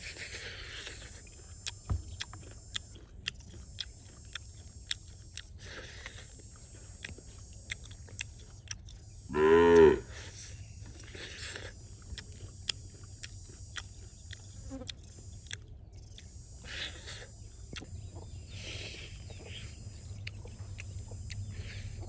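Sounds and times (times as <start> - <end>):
chewing and crunching clicks: 0.0 - 22.0
insects chirping: 0.0 - 22.0
cow mooing: 9.3 - 10.1.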